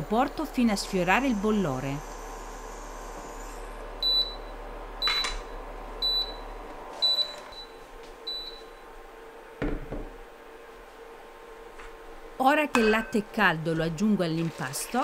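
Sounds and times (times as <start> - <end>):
faint steady hum: 0.0 - 15.0
hob beeping: 4.0 - 8.9.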